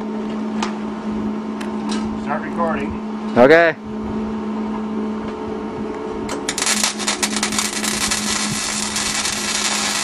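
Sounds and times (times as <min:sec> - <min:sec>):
steady low hum: 0:00.0 - 0:10.0
arc welding crackle: 0:06.3 - 0:10.0.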